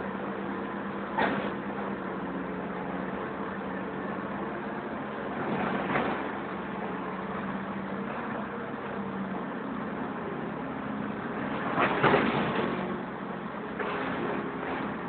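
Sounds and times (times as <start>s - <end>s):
heavy machinery diesel engines running: 0.0s - 15.0s.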